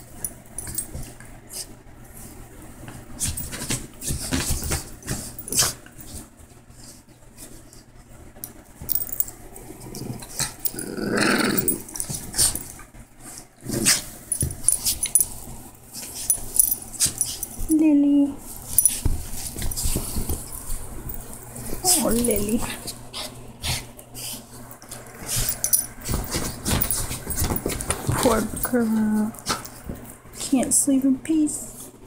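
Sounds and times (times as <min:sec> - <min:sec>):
dog growling: 0:09.6 - 0:12.6, 0:13.6 - 0:14.1
dog scratching at blanket: 0:25.2 - 0:29.8.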